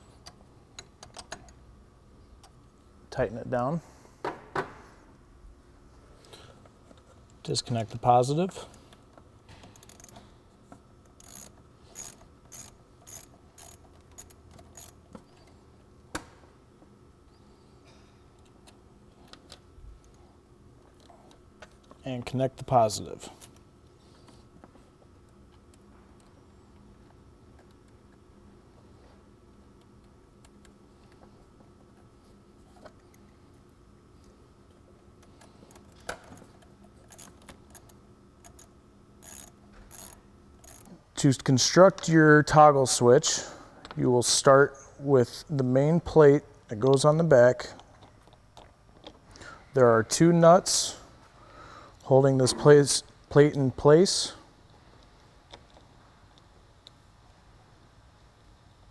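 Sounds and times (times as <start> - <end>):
ratchet wrench clicking: 9.8 - 10.2, 11.2 - 15.0, 37.1 - 40.9.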